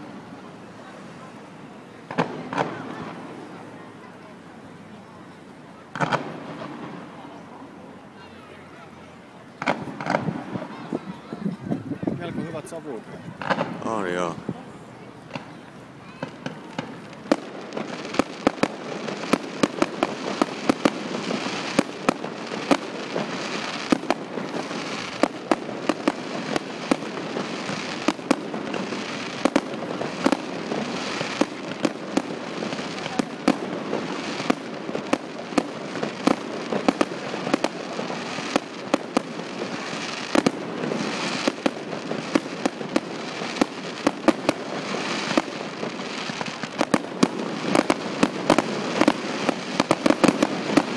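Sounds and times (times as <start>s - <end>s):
fireworks crackling and banging: 0.0s - 50.9s.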